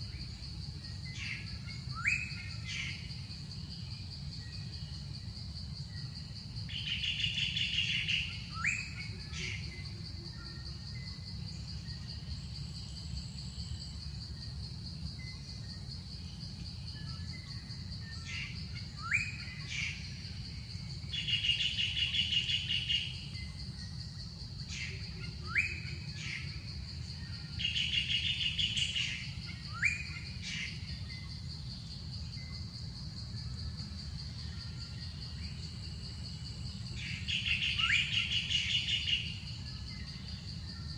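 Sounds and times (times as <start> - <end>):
insect drone: 0.0 - 40.9.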